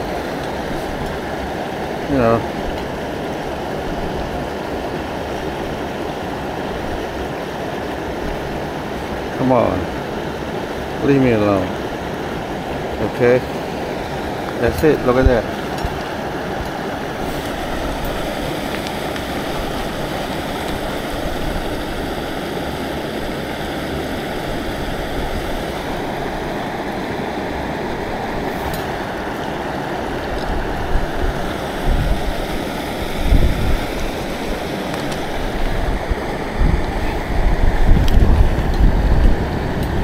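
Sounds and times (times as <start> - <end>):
stream water flowing: 0.0 - 40.0
wind buffeting microphone: 14.0 - 27.0, 27.8 - 40.0.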